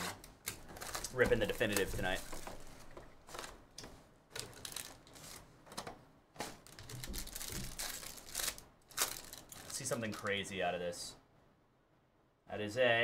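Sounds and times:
wrapper crinkling and tearing: 0.4 - 3.6, 4.3 - 5.4, 6.6 - 10.4
cardboard scraping: 0.7 - 3.5.

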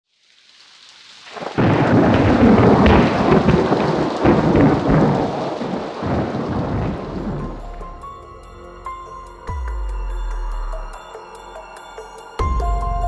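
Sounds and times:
rolling thunder: 1.3 - 8.6.

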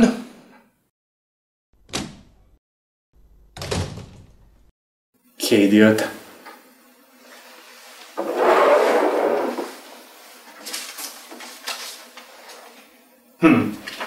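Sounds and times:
paper sheets crackling: 8.0 - 12.9, 13.8 - 14.0.

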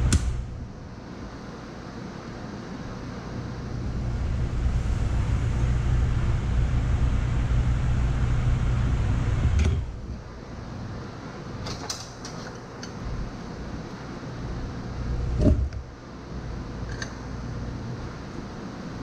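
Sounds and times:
low motor hum: 0.0 - 1.4, 3.4 - 11.2, 13.0 - 18.4.

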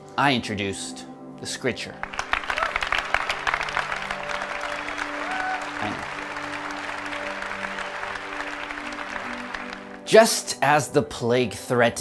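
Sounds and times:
background music chords: 0.0 - 12.0
audience applause: 2.0 - 10.1.

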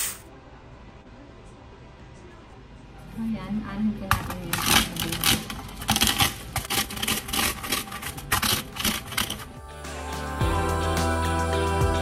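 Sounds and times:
beans crackling under rolling can: 4.1 - 9.6.

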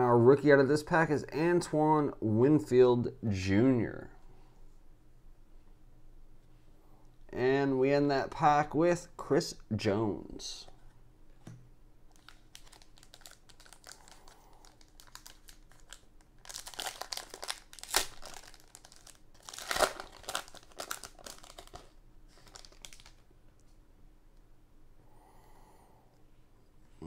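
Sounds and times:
foil wrapper crinkling and tearing: 12.1 - 23.3.

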